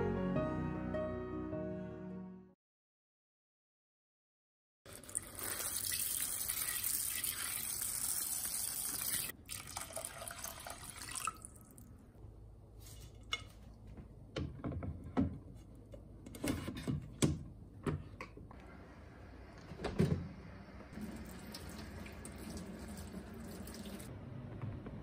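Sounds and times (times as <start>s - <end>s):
water pouring into pot: 4.9s - 11.9s, 21.0s - 24.1s.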